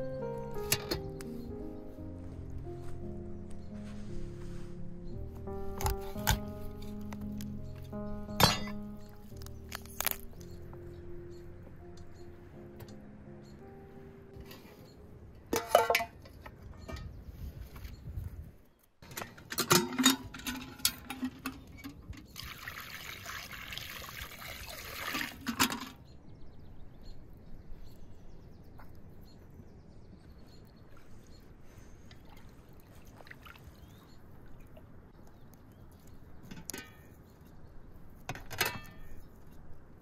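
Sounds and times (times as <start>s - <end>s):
outdoor ambience: 0.0s - 40.0s
metal kitchenware clanking: 8.4s - 8.8s, 15.5s - 17.1s, 19.0s - 22.0s
water pouring: 22.3s - 25.9s.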